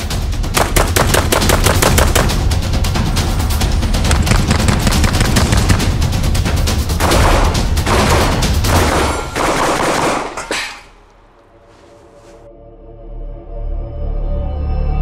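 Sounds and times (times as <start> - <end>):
shotgun firing rapidly: 0.6 - 2.4, 7.0 - 10.5.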